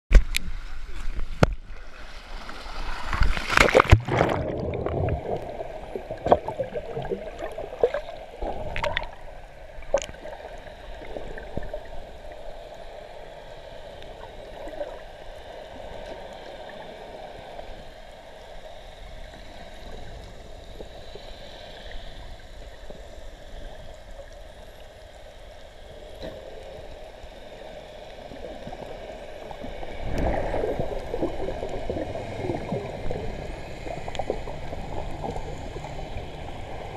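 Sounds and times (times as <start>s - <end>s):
swimmer splashing into water: 3.1s - 5.2s
muffled underwater gurgling: 3.6s - 12.4s, 26.3s - 36.9s.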